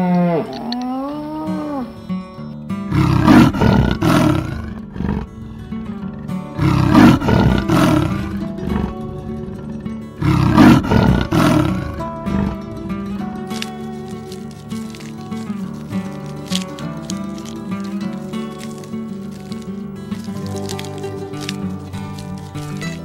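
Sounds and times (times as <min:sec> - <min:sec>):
background music: 0:00.9 - 0:23.0
big cat roaring: 0:02.9 - 0:15.1.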